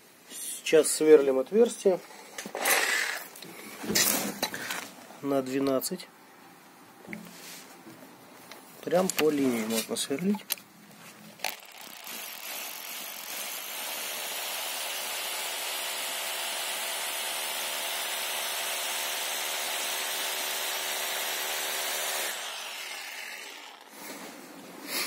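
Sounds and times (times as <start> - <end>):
power drill drilling into brick: 11.5 - 24.0.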